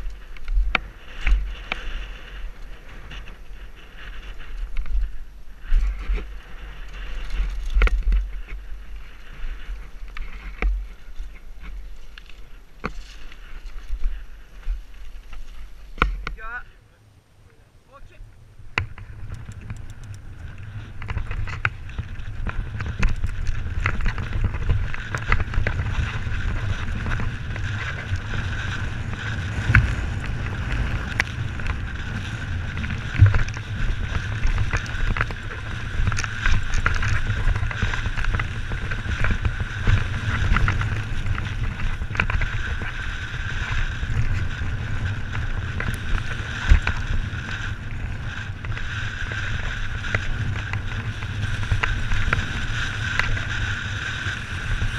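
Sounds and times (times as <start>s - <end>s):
bike rattling over stones: 0.0s - 16.6s, 18.6s - 54.9s
low rumble from bike tyres: 0.0s - 54.9s
wind buffeting microphone: 17.9s - 54.9s.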